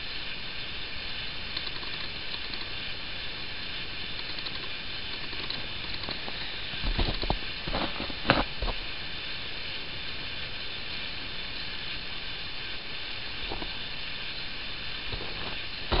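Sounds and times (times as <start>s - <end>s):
campfire hissing and crackling: 0.0s - 16.0s
fire snaps and knocks: 5.2s - 8.8s.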